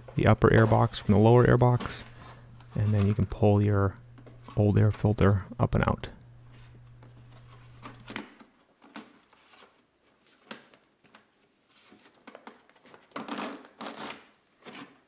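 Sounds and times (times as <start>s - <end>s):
paper filter scraping plastic: 0.1s - 3.4s, 11.8s - 15.0s.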